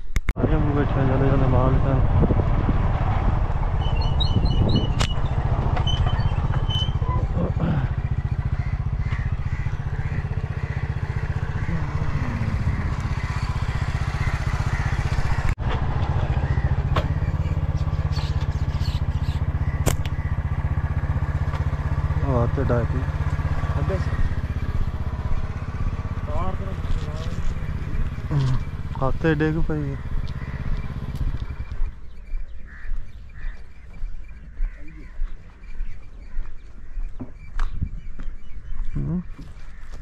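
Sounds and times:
small motorcycle engine running: 0.6 - 38.2.

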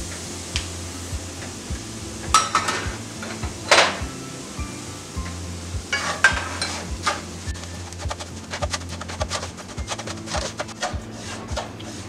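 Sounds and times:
light sizzle: 0.0 - 12.0
wooden spatula scraping pan: 6.0 - 12.0.

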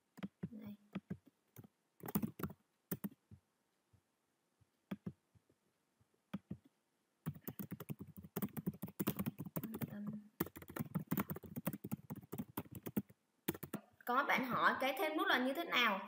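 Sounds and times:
computer keyboard typing: 0.2 - 3.2, 7.2 - 13.8.

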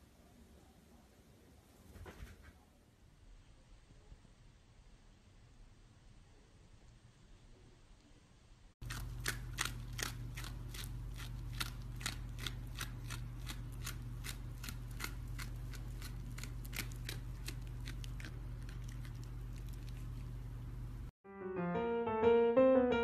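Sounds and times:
low steady hum: 2.8 - 21.2
fox chewing crunching clicks: 8.8 - 20.3.

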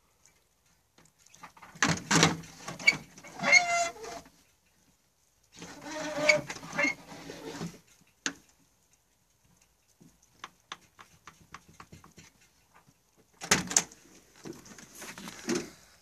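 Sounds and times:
faint irregular clicks: 0.0 - 1.8, 3.9 - 5.8, 7.7 - 16.0.

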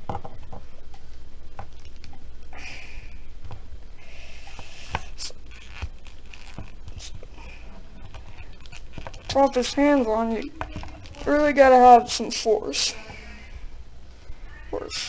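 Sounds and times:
low steady hum: 0.0 - 15.0
plastic rubbing and scraping: 4.5 - 12.0.

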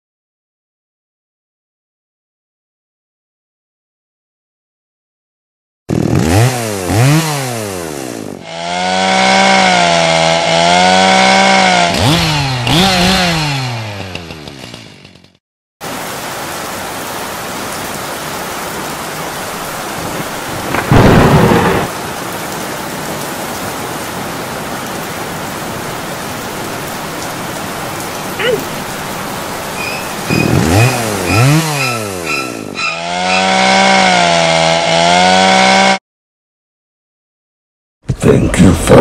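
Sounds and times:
chainsaw revving: 5.9 - 15.4, 29.8 - 36.0
heavy rain: 15.8 - 32.4.

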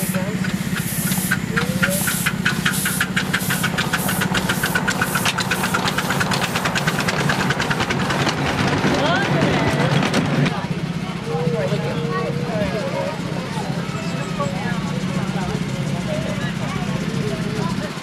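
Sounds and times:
steam hissing: 0.0 - 8.7
steam locomotive chuffing: 0.0 - 18.0.

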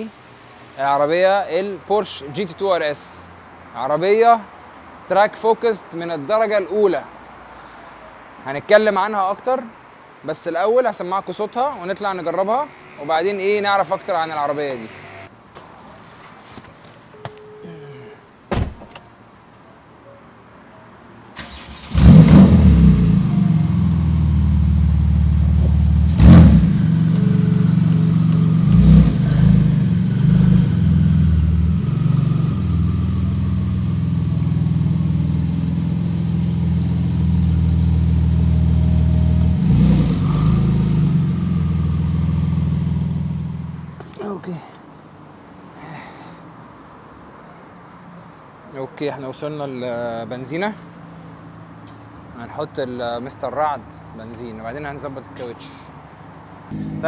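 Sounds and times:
engine revving: 12.7 - 15.3, 21.4 - 43.8, 56.7 - 57.0
thump: 18.5 - 19.0
car engine starting: 21.4 - 44.0
car engine idling: 21.5 - 44.0.

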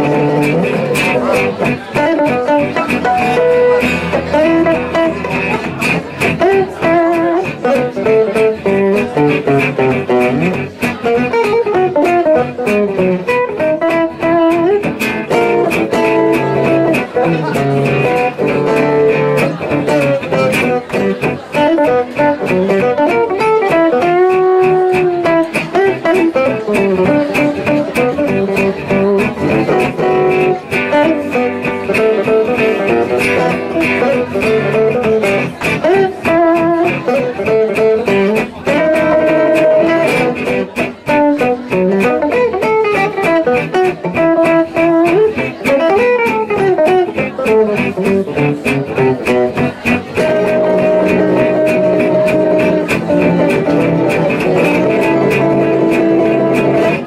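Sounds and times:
acoustic guitar lead line: 0.0 - 57.0
strummed acoustic guitar rhythm: 0.0 - 57.0.

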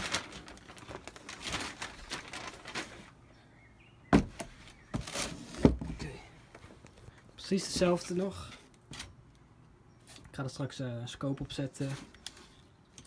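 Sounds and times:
rustling in cardboard box: 0.0 - 3.2, 4.3 - 6.0.

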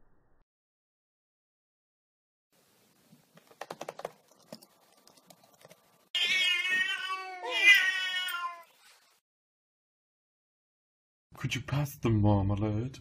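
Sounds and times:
paws tapping laptop keys: 3.4 - 6.0
cat yowling: 6.2 - 8.7.

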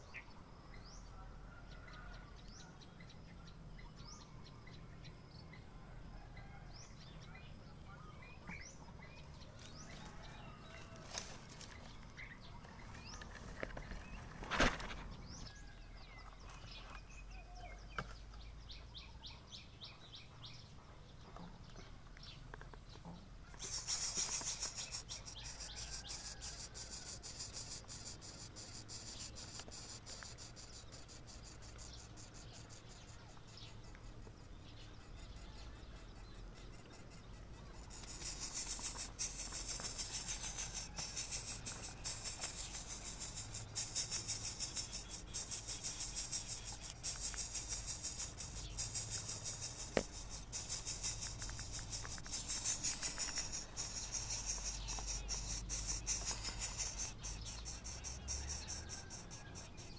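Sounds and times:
nestlings rasping buzz: 9.6 - 12.0, 23.5 - 59.9
short bird chirps: 23.5 - 34.0.

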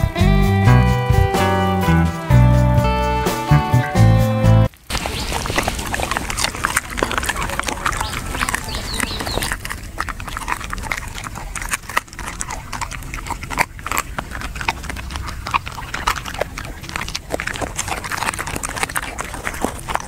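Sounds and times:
dog chewing and crunching: 4.7 - 20.0.

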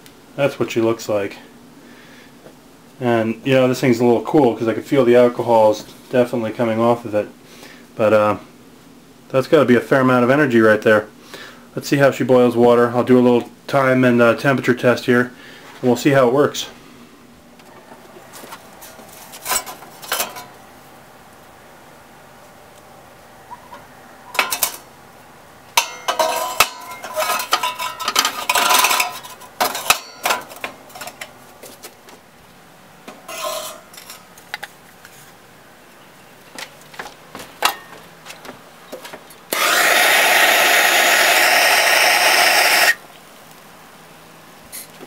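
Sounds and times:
sheet metal clattering and scraping: 25.8 - 31.2, 33.3 - 34.2
propane torch hissing: 39.5 - 43.0.

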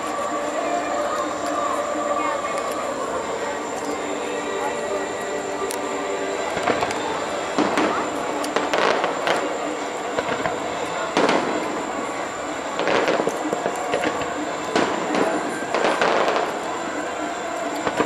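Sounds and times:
steady background din: 0.0 - 18.0
fireworks bangs and crackles: 6.4 - 18.0.

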